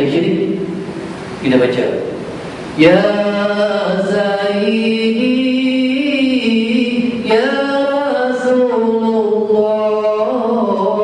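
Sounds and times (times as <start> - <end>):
man singing unaccompanied: 2.8 - 11.0.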